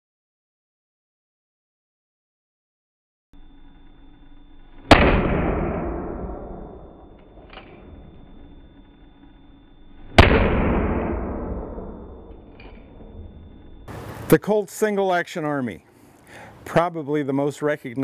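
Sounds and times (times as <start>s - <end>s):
revolver shots ringing out: 4.8s - 8.2s, 10.0s - 13.9s.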